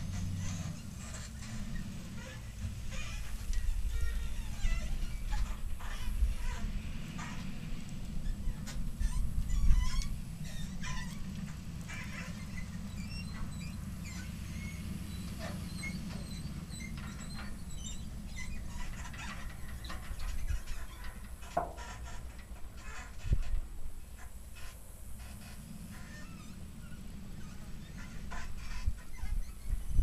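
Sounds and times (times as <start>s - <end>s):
steady low rumble: 0.0s - 21.5s
birds chirping: 9.5s - 20.0s.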